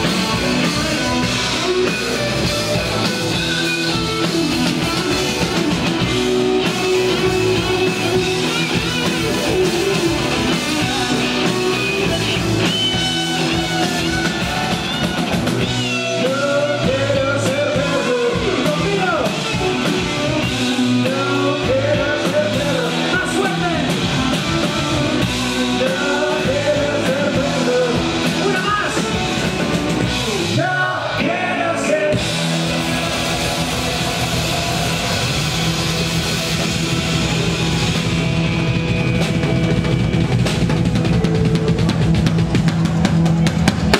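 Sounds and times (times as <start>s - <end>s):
bass guitar: 0.0s - 43.9s
drum kit: 0.0s - 43.9s
electric guitars: 0.0s - 43.9s.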